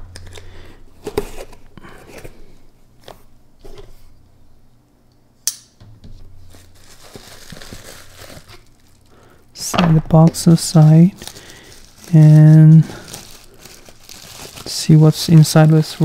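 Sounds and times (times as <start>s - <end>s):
bubble wrap crinkling: 0.0s - 2.4s, 6.2s - 9.5s, 10.1s - 16.0s.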